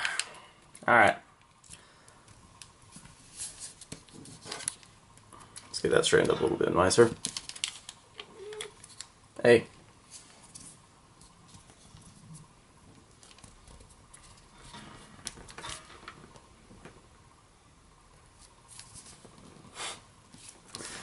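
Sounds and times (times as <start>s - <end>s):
paper folding and rustling: 2.8s - 6.4s, 7.0s - 9.1s, 10.1s - 16.2s, 18.3s - 19.7s, 20.3s - 21.0s.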